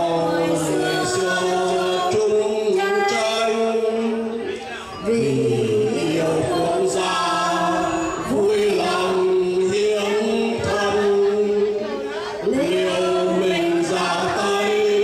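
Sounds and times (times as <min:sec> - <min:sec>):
group singing into microphones: 0:00.0 - 0:15.0.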